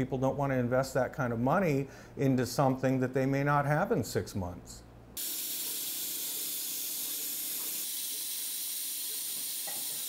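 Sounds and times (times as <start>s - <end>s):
high-pitched hiss: 5.2s - 10.0s.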